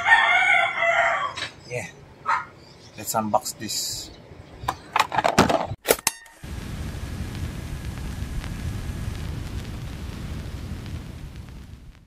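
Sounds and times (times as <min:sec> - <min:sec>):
low rumbling noise: 0:06.4 - 0:12.0.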